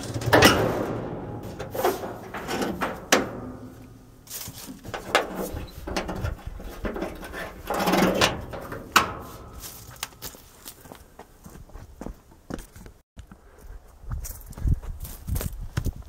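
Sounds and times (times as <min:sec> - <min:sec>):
metal hood latch clicks: 0:00.0 - 0:04.0, 0:04.9 - 0:09.3
scraping rustle: 0:00.0 - 0:10.6.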